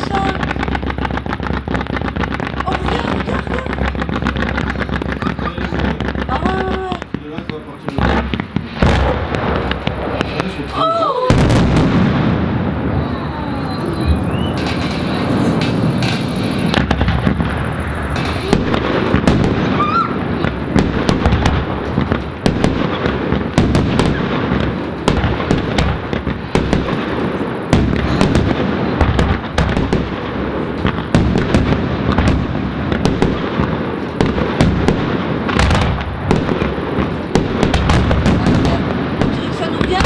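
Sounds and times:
fireworks bursting: 0:00.0 - 0:40.0
rising firework whistle: 0:08.6 - 0:30.0.

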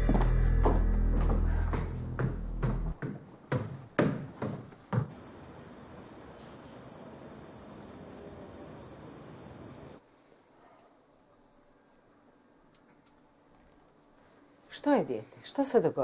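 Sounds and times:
music beat: 0:00.0 - 0:03.0
crickets chirping: 0:05.0 - 0:10.6.

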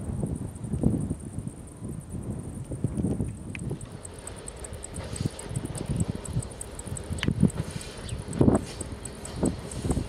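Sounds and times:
wind buffeting microphone: 0:00.0 - 0:10.0
faint fast high ticking: 0:03.6 - 0:10.0.

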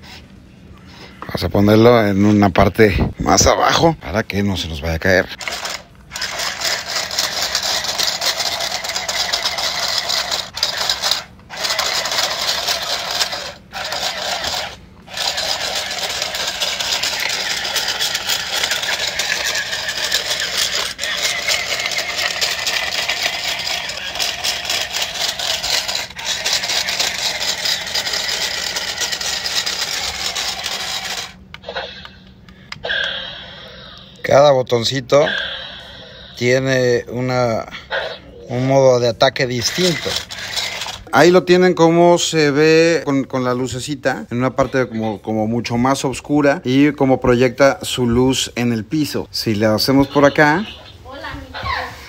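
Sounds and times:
toy motor whirring: 0:05.3 - 0:34.4, 0:39.4 - 0:41.3
plastic legs rattling on brick: 0:05.4 - 0:31.4, 0:39.6 - 0:41.1.

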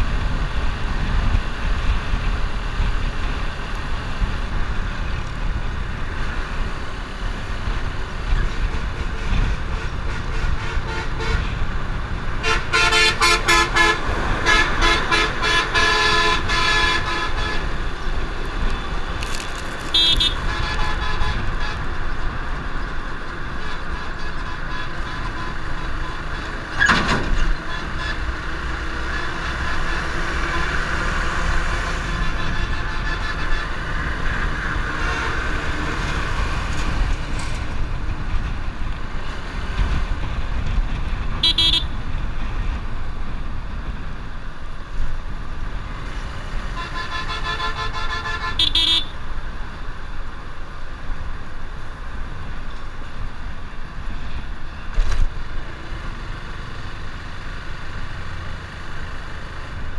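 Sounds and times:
wind and road noise: 0:00.0 - 0:59.9
vehicle horn honking: 0:12.4 - 0:17.7, 0:19.9 - 0:21.8, 0:41.4 - 0:42.0, 0:46.8 - 0:49.2.

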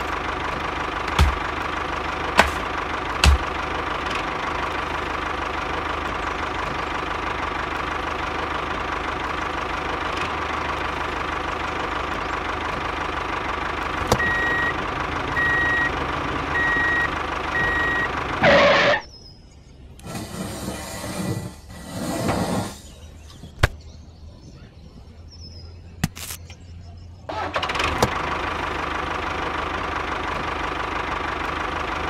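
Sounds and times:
tractor engine running: 0:00.0 - 0:19.2, 0:25.2 - 0:32.0
reversing beeps: 0:14.2 - 0:14.8, 0:15.4 - 0:19.0.

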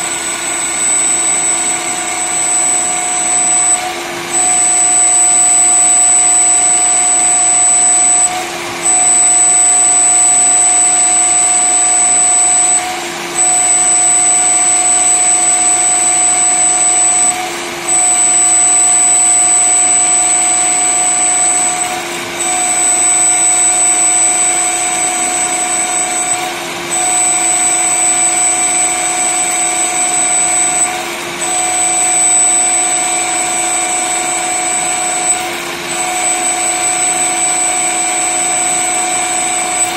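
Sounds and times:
lathe machine whine: 0:00.0 - 0:39.9.

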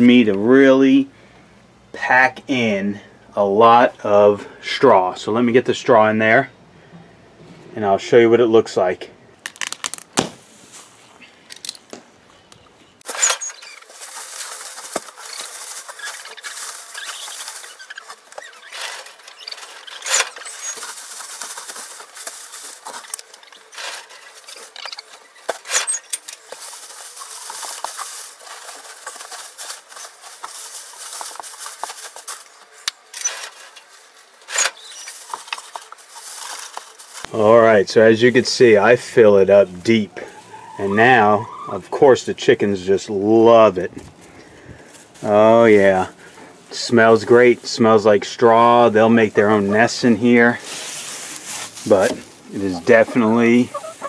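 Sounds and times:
dry straw rustling and crackling: 0:13.0 - 0:41.7, 0:42.6 - 0:54.0.

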